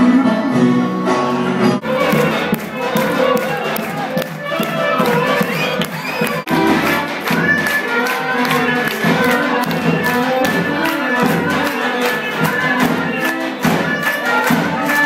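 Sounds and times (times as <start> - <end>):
folk dance music: 0.0 - 15.0
audience clapping along: 1.8 - 15.0.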